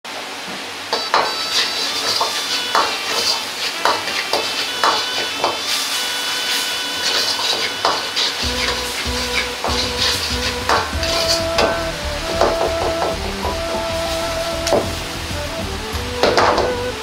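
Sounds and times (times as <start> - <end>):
sauce sizzling: 0.9 - 17.0
metal ladle scraping a wok: 1.0 - 11.9.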